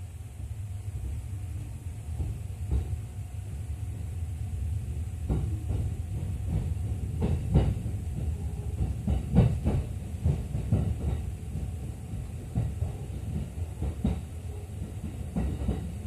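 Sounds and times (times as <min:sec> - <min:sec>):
train low rumble: 0:00.0 - 0:16.0
wheels knocking on track: 0:05.2 - 0:16.0.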